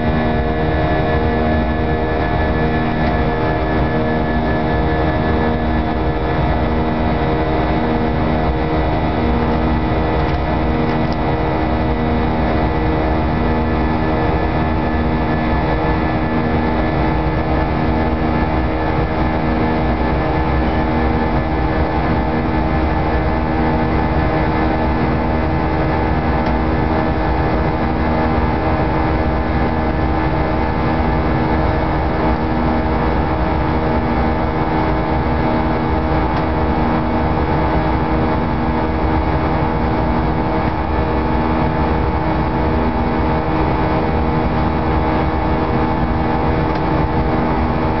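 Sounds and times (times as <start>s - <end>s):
humming tones: 0.0s - 28.0s
jet engine drone in cabin: 0.0s - 48.0s.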